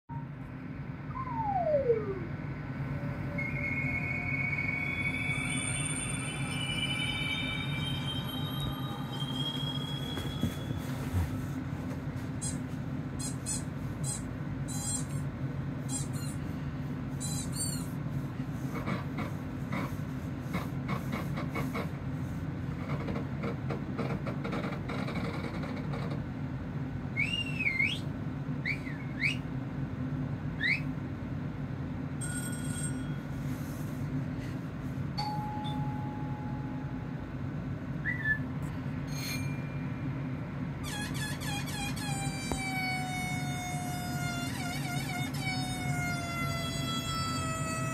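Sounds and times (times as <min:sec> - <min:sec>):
steady low hum: 0:00.1 - 0:47.9
rising whistles: 0:01.0 - 0:11.0, 0:27.1 - 0:29.5, 0:38.0 - 0:38.6
short held tone: 0:01.1 - 0:02.3, 0:02.9 - 0:11.2
brief squeak: 0:40.8 - 0:47.9.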